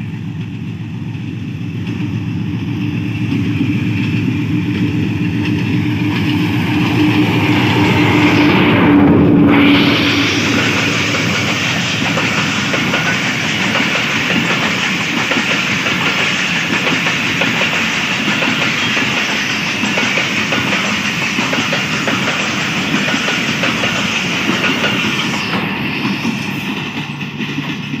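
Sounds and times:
train wheels clattering over rail joints: 9.8s - 28.0s.

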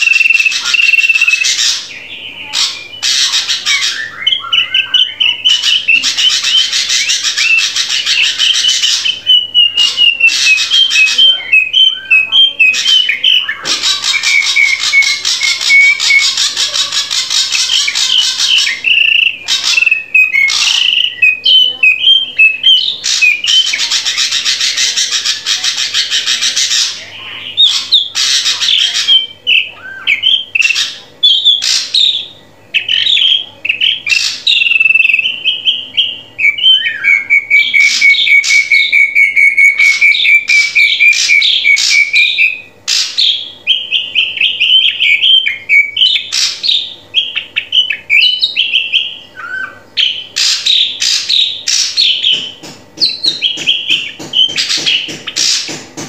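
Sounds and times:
long steady bird whistle: 0.0s - 1.5s
bird whistles and chattering: 0.0s - 56.0s.

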